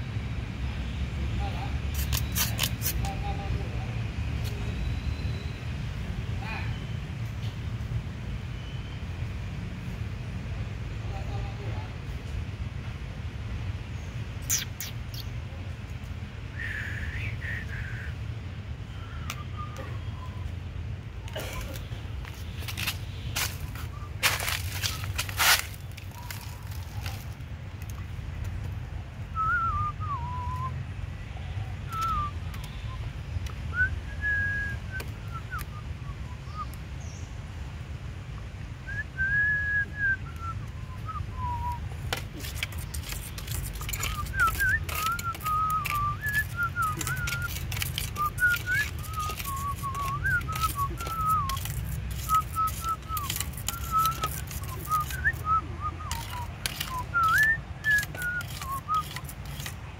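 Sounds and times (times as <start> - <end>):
person whistling: 16.6 - 18.2, 29.4 - 30.8, 31.9 - 33.0, 33.7 - 36.7, 38.9 - 41.8, 43.4 - 59.0
sharp clicks: 41.7 - 59.8.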